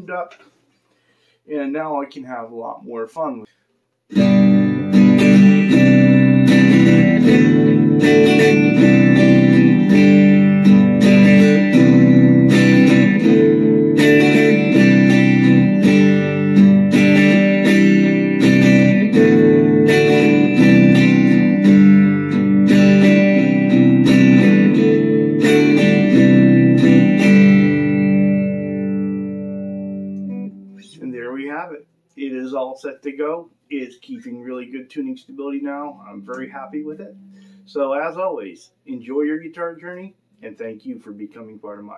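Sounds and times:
electric guitar strumming chords: 4.1 - 31.4, 35.6 - 37.9.

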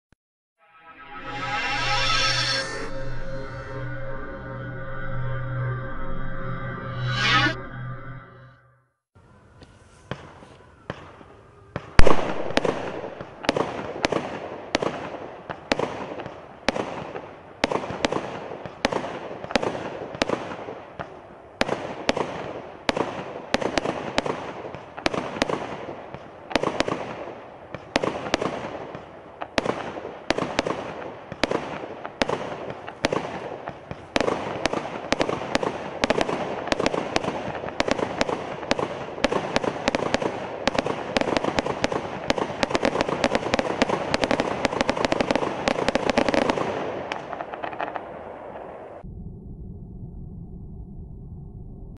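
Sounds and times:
firework shots: 10.0 - 49.0.

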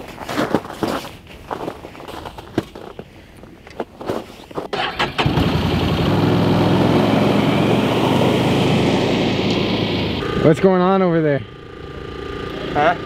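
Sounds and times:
footsteps and knocks: 0.0 - 4.7
vehicle engine running: 5.1 - 13.0.

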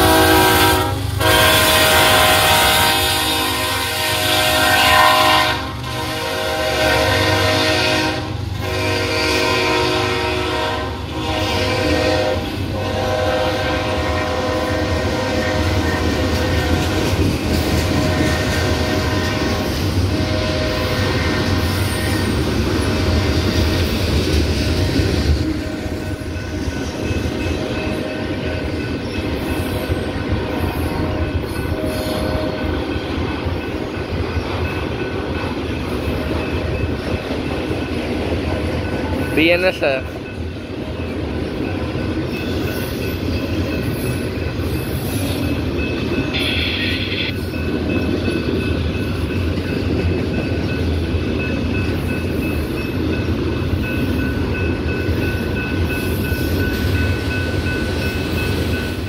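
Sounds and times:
locomotive air horn blasts: 0.0 - 17.0, 17.9 - 19.6, 20.2 - 21.5
railcars rumbling and clacking: 0.0 - 59.0.

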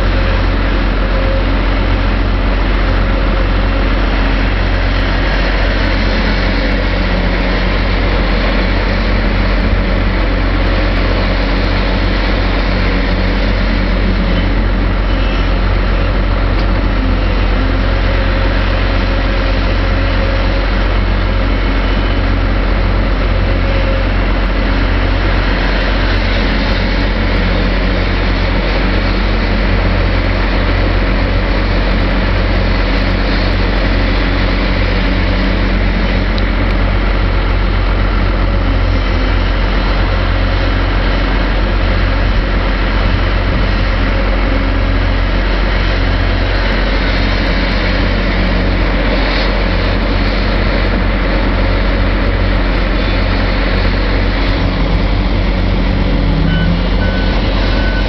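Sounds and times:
excavator diesel engine under load: 0.0 - 58.0.

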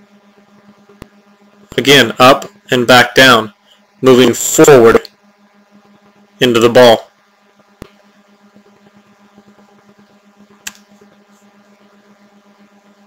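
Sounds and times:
faint electrical hum: 0.0 - 13.0
short sharp clicks: 10.6 - 10.9.

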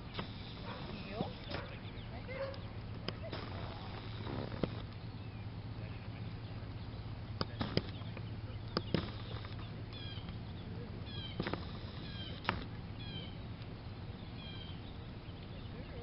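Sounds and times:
bird chirping: 0.0 - 16.0
outdoor background noise: 0.0 - 16.0
sharp clicks: 2.5 - 5.1, 7.4 - 10.5, 11.1 - 12.8.

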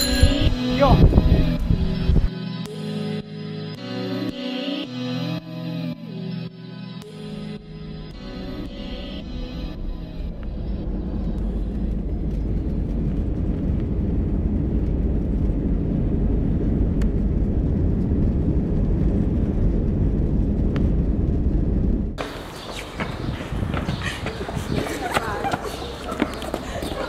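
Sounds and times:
low rumble of moving vehicle: 7.6 - 27.0.

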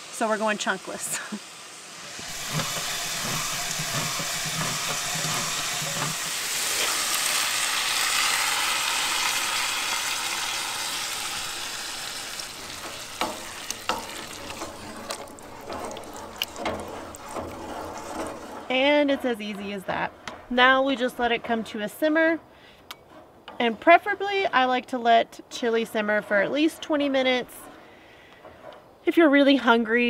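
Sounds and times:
sauce sizzling in a pot: 0.0 - 18.6
can opener cranking: 2.1 - 18.7
wooden spoon knocking pot: 2.3 - 6.2.

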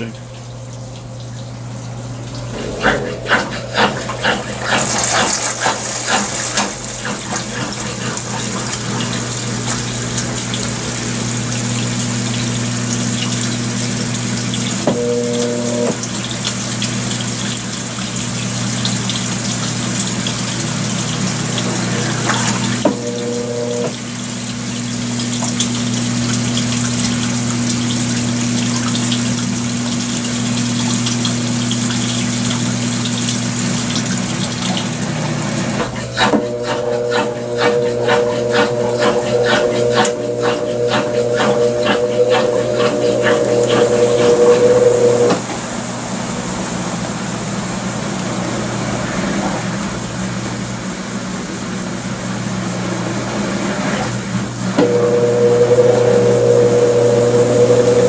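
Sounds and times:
drain pump humming: 0.0 - 58.0
water rushing out: 2.4 - 17.1, 19.7 - 58.0
short higher hum: 2.6 - 7.0, 14.9 - 16.0, 22.8 - 24.0, 35.8 - 48.6, 54.8 - 58.0.

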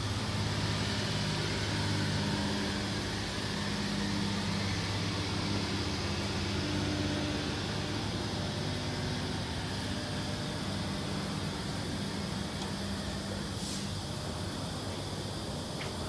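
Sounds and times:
misting spray hissing: 13.6 - 14.0.

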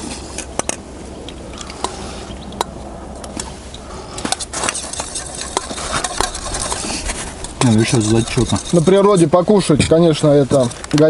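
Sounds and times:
spoons clinking against metal bowls: 7.5 - 9.2.

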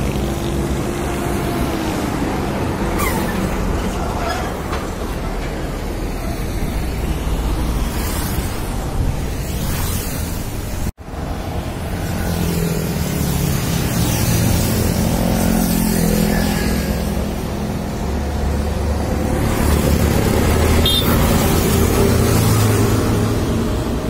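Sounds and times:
road traffic passing: 0.0 - 24.0.

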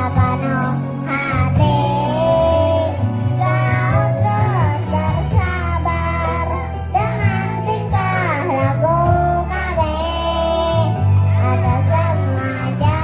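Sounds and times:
children's choir singing: 0.0 - 6.4
musical accompaniment with bass line: 0.0 - 13.0.

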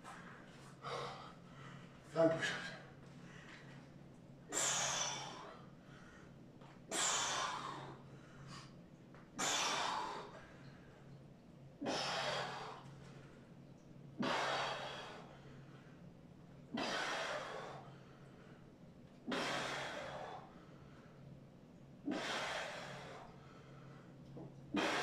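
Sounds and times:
man breathing hard: 0.1 - 3.8, 4.5 - 8.8, 9.4 - 10.9, 11.8 - 12.9, 14.2 - 16.0, 16.7 - 18.7, 19.3 - 21.2, 22.0 - 24.1, 24.8 - 25.0.

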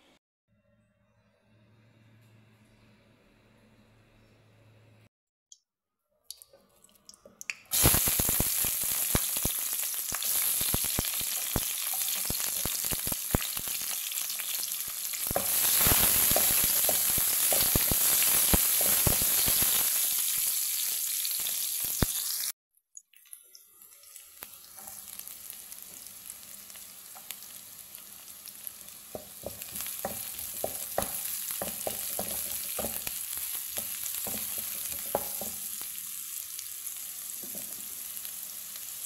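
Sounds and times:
onions sizzling in oil: 7.7 - 22.6, 23.7 - 39.0.

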